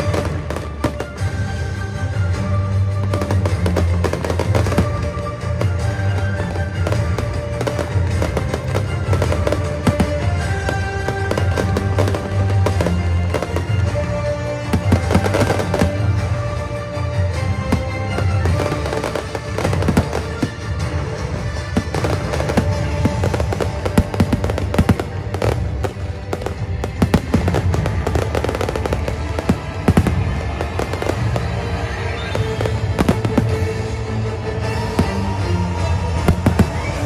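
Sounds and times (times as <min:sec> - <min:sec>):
fireworks bursting and crackling: 0:00.0 - 0:37.0
music playing: 0:00.0 - 0:37.0.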